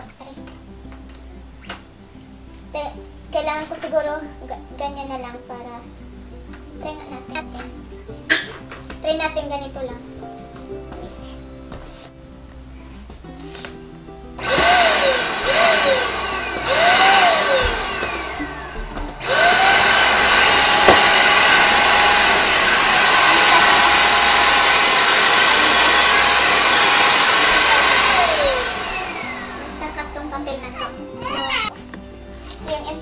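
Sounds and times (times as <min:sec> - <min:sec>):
vacuum cleaner motor whine: 0:14.4 - 0:30.1.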